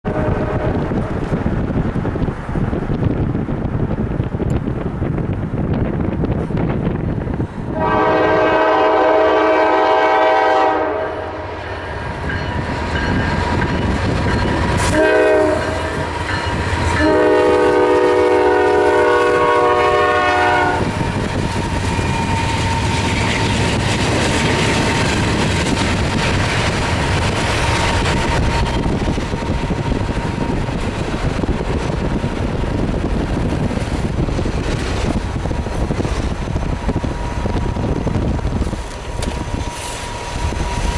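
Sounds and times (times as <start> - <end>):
locomotive air horn blasts: 0.0 - 0.9, 7.7 - 11.8, 14.7 - 16.3, 16.9 - 21.0
train rumbling: 0.0 - 40.9.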